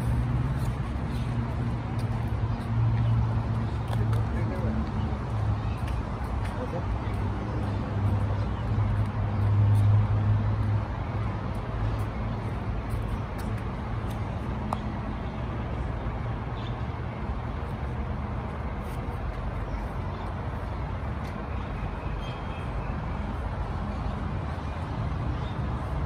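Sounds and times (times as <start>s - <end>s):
street noise: 0.0s - 26.0s.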